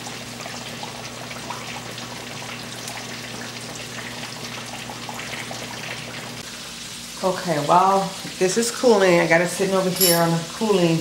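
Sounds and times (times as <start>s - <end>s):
water boiling and bubbling: 0.0s - 11.0s.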